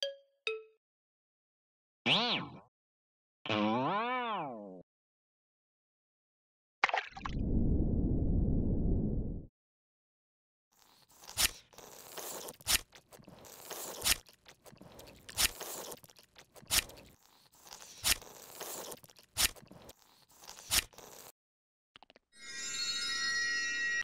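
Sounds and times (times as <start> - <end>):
crunching snip with scraping rustle: 11.0 - 21.1
bright ringing chime: 22.4 - 24.0.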